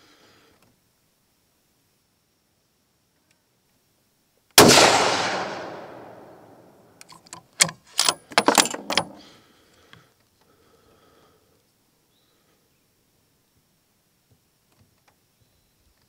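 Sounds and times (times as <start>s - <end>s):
quiet rifle handling: 4.6s - 9.3s
rifle bolt clicks and clacks: 4.7s - 9.2s.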